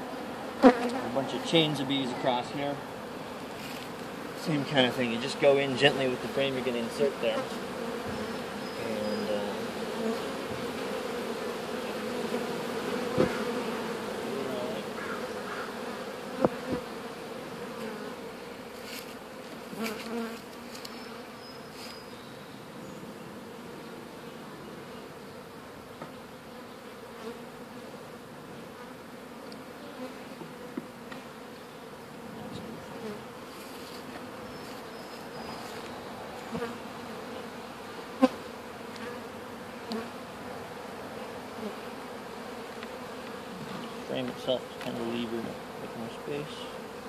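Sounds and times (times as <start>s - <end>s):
bee swarm buzzing: 0.0s - 47.0s
knocks on wooden hive frames: 13.0s - 13.6s, 16.4s - 16.9s.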